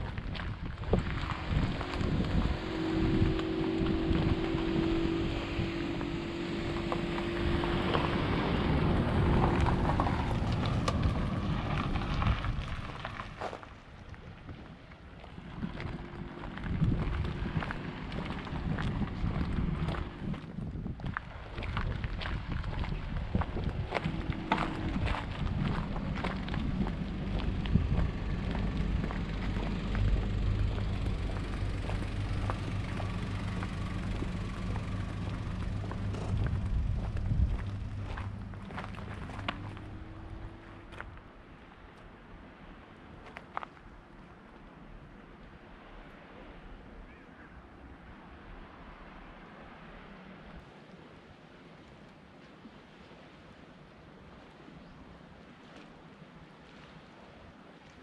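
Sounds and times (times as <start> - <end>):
steady low hum: 0.0 - 13.9, 14.8 - 21.1, 21.8 - 43.2
wind buffeting microphone: 0.0 - 46.1.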